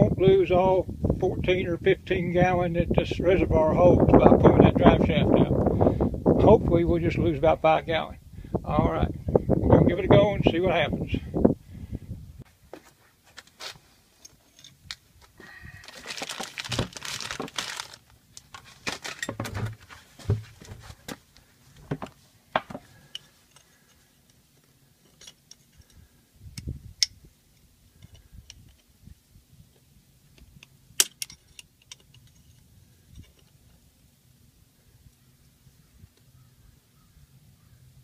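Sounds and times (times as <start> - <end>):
rustling handling noise: 12.4 - 26.1.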